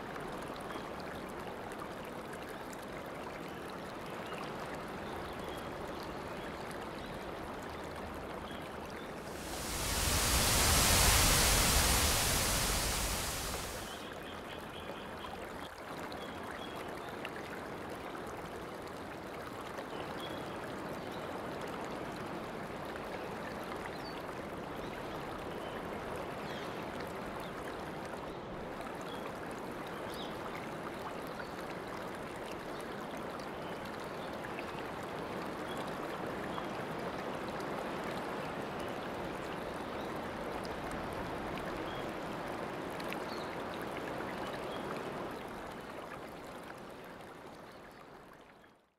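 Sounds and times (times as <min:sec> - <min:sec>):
stream water rushing: 0:09.1 - 0:14.0.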